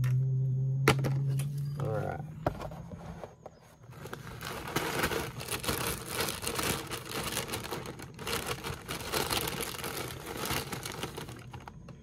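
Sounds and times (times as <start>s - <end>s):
plastic bag crinkling: 3.8s - 12.0s.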